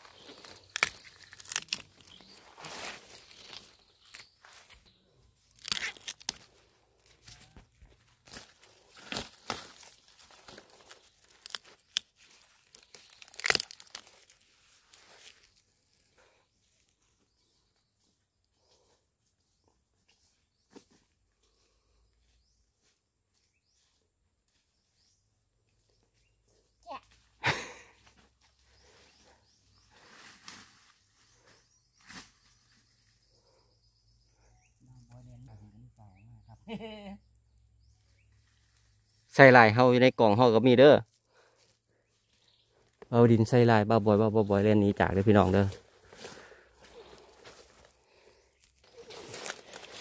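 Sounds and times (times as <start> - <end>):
dry vegetation crackling and snapping: 0.0 - 16.0, 45.4 - 50.0.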